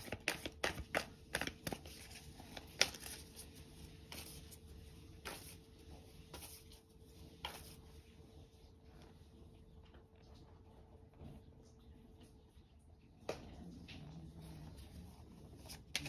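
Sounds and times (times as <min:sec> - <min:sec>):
cards being shuffled: 0:00.0 - 0:04.6, 0:15.6 - 0:16.0.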